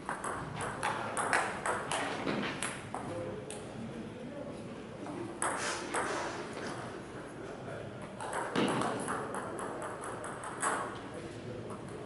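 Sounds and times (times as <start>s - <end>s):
table tennis ball taps: 0.0s - 3.1s.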